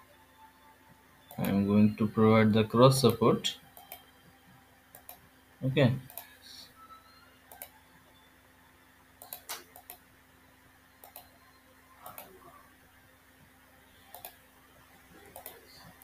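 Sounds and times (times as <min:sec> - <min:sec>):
faint steady hum: 0:00.0 - 0:16.0
computer mouse clicking: 0:01.3 - 0:01.6, 0:03.8 - 0:04.0, 0:04.9 - 0:05.2, 0:06.0 - 0:06.3, 0:07.5 - 0:07.8, 0:09.2 - 0:10.0, 0:11.0 - 0:11.3, 0:12.0 - 0:12.4, 0:14.0 - 0:14.4, 0:15.3 - 0:15.7.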